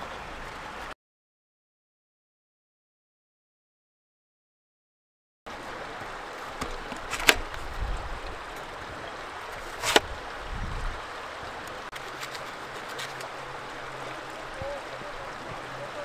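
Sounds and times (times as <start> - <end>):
knife cutting apple: 9.6 - 10.1.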